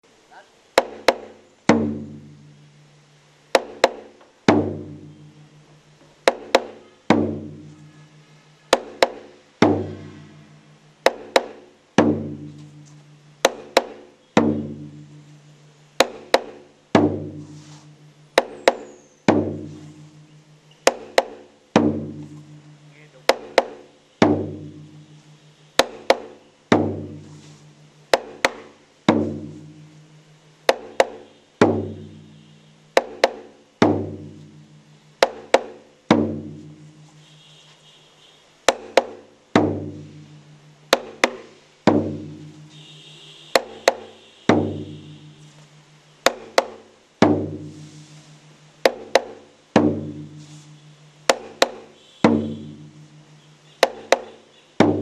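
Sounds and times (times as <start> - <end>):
low ringing drum beats: 1.7 - 2.9, 9.6 - 10.9, 12.0 - 13.5, 14.4 - 15.8, 16.9 - 18.4, 19.3 - 23.6, 24.2 - 25.5, 26.7 - 27.9, 36.1 - 37.1, 39.6 - 42.8.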